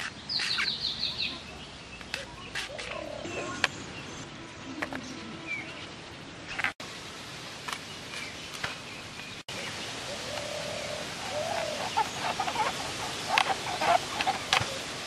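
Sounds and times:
bird calls and chirps: 0:00.0 - 0:06.8, 0:07.9 - 0:14.9
steady hiss: 0:06.2 - 0:15.0.

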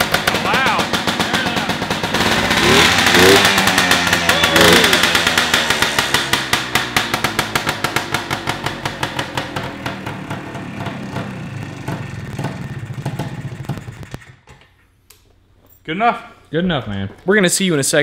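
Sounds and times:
two-stroke motorcycle engine running: 0:00.0 - 0:14.4.

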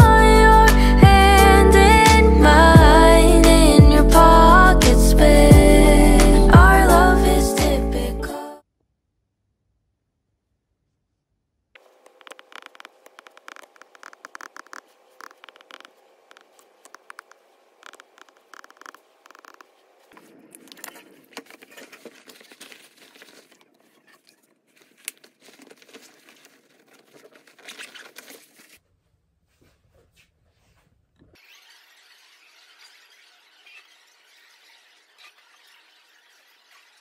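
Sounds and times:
rustling nylon clothing: 0:20.8 - 0:31.8.

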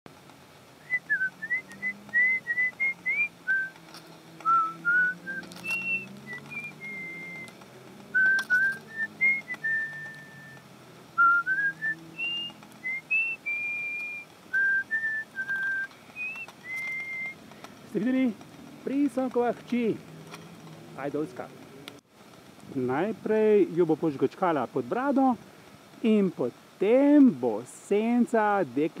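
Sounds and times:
person whistling a tune: 0:00.8 - 0:03.8, 0:04.4 - 0:07.5, 0:08.2 - 0:10.6, 0:11.2 - 0:17.4.

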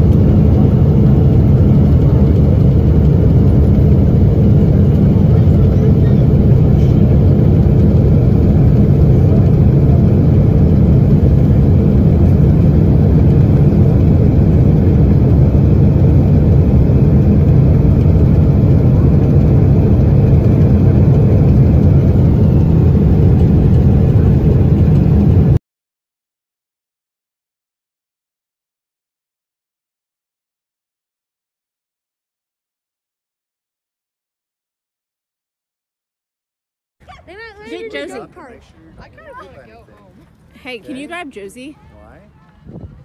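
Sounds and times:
jet engine rumble in cabin: 0:00.0 - 0:25.6.

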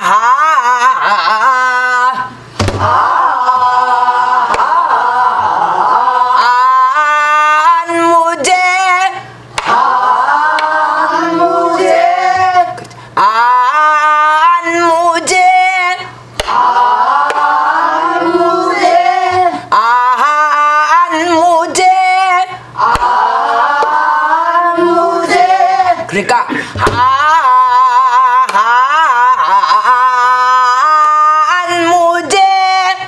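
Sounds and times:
voices singing long held notes: 0:00.0 - 0:26.1, 0:27.0 - 0:33.0
barrel drum struck sharply: 0:02.6 - 0:02.9.

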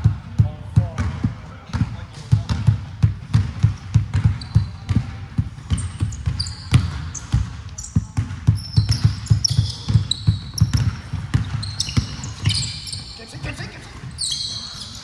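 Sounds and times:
basketball bouncing: 0:00.0 - 0:14.2
sneakers squeaking: 0:00.9 - 0:15.0.

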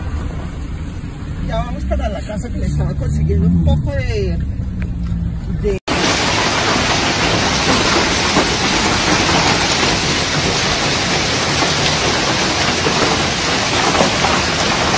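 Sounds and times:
hailstones falling on pavement: 0:05.9 - 0:14.9.

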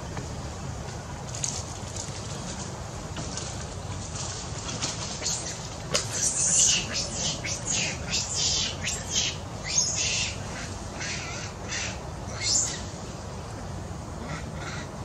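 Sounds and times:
monkeys squeaking and screeching: 0:05.2 - 0:12.8.

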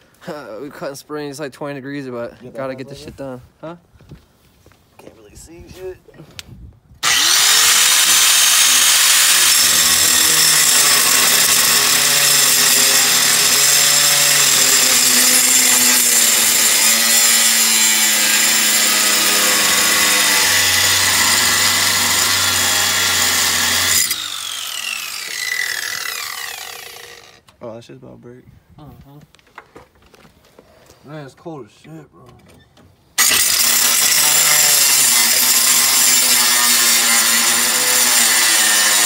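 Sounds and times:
angle grinder cutting steel: 0:07.0 - 0:27.4, 0:33.2 - 0:39.0.

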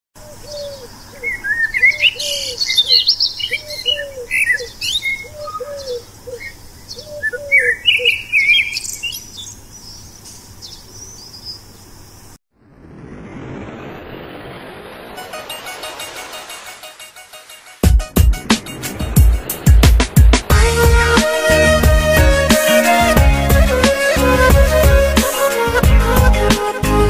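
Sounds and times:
birds chirping and twittering: 0:00.2 - 0:12.4.

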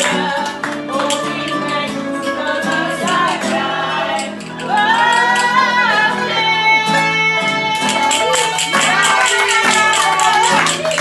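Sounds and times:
acoustic guitar: 0:00.0 - 0:11.0
mandolin: 0:00.0 - 0:11.0
woman singing folk song: 0:00.0 - 0:11.0.

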